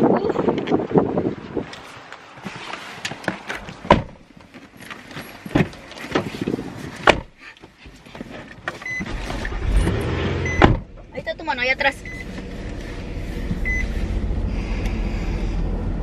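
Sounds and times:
car door opening and shutting: 3.0s - 11.1s.

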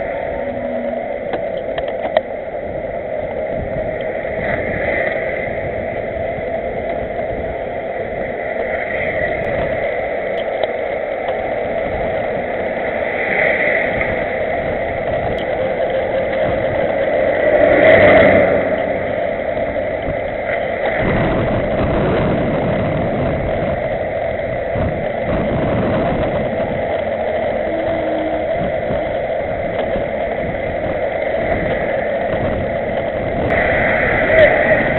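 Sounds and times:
tyres on asphalt: 6.3s - 34.9s
wind rushing: 13.4s - 34.9s.

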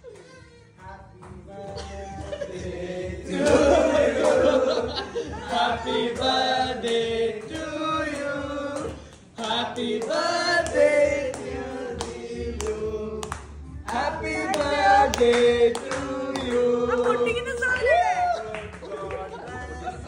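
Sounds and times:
several voices singing: 0.9s - 20.0s.

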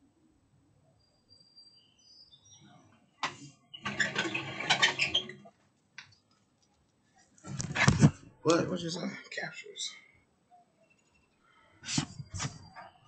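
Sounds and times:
faint bird chirps: 0.8s - 3.9s, 9.5s - 13.0s
loud rustling and clattering: 7.4s - 8.2s.

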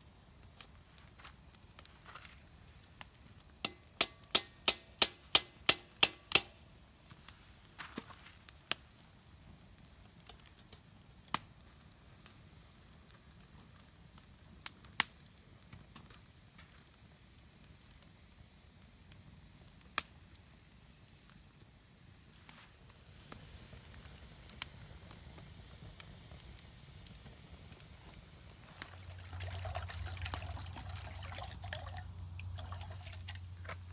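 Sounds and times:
burning wood popping: 22.1s - 33.9s.

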